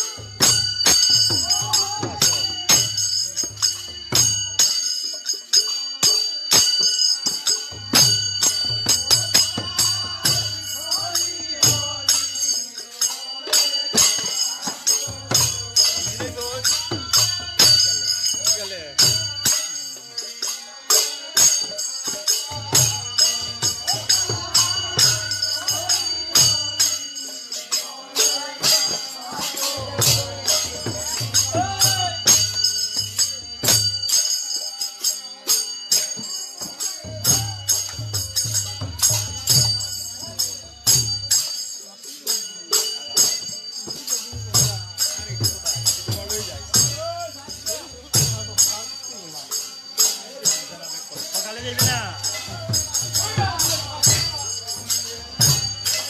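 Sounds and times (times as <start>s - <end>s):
drum: 0.0s - 4.8s, 6.6s - 12.5s, 21.0s - 27.4s, 28.2s - 34.2s, 35.6s - 41.7s, 43.3s - 49.0s, 51.2s - 56.0s
group of voices singing a chant: 0.0s - 56.0s
hand cymbals ringing: 0.0s - 56.0s.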